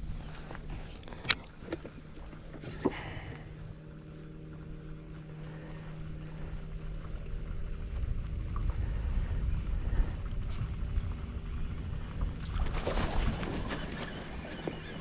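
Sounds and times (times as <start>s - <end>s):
steady low hum: 0.0s - 15.0s
wind rumbling on microphone: 4.4s - 15.0s.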